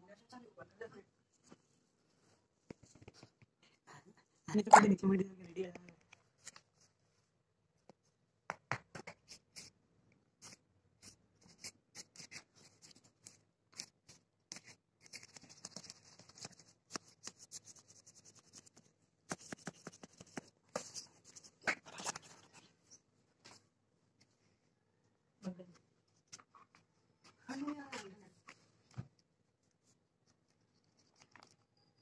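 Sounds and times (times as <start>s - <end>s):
kitten claws scratching paper: 10.4s - 22.6s.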